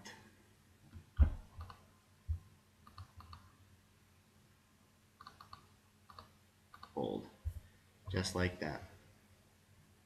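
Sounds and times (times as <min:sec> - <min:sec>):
mouse and keyboard clicks: 0:02.8 - 0:03.5, 0:05.2 - 0:07.0.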